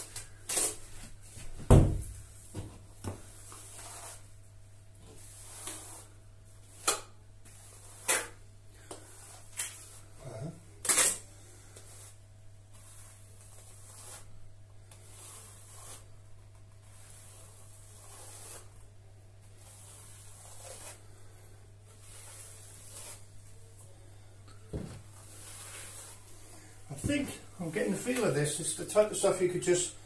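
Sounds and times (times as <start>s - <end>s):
trowel scraping plaster: 3.5s - 4.3s, 5.2s - 6.1s, 6.7s - 8.4s, 11.8s - 14.3s, 14.9s - 16.1s, 16.8s - 18.8s, 19.6s - 21.0s, 22.0s - 23.3s, 25.3s - 26.2s.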